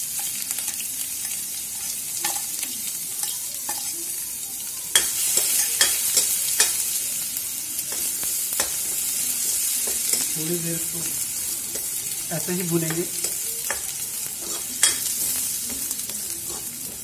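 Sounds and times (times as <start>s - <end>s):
paste sizzling in hot oil: 0.0s - 17.0s
metal ladle scraping a pan: 14.4s - 15.3s.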